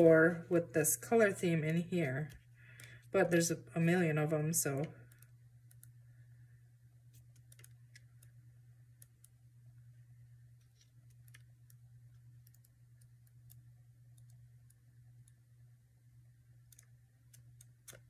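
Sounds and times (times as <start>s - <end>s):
steady low hum: 0.0s - 18.0s
paper sticker strips clicking: 16.7s - 18.0s.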